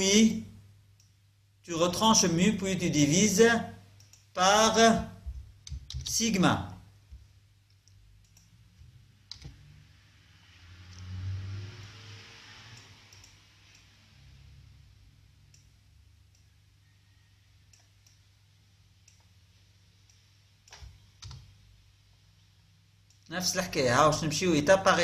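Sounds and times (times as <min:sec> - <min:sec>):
mouse and keyboard clicks: 0:09.3 - 0:09.6.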